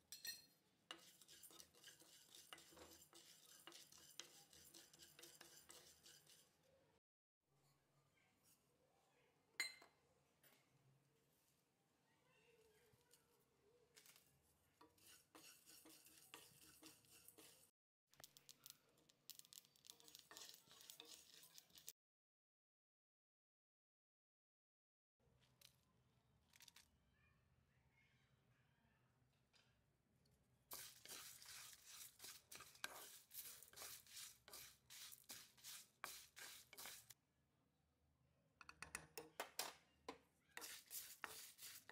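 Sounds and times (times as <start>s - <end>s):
spatula scraping seeds in a pan: 0.9s - 6.7s, 14.8s - 17.7s, 19.0s - 21.9s, 30.7s - 37.2s, 40.6s - 41.9s
seeds rattling in a pan: 18.2s - 21.9s, 30.7s - 37.1s.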